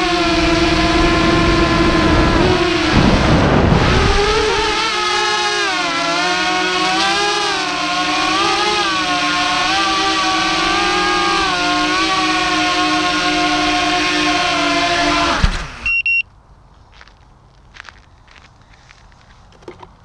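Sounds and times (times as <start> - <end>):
wind noise rush: 0.0 - 5.0
drone motors whining: 0.0 - 16.2.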